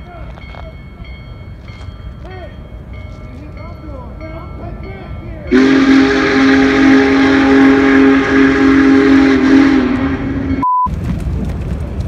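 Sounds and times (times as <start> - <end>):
low noisy rumble: 0.8 - 12.0
train horn chord: 5.5 - 10.6.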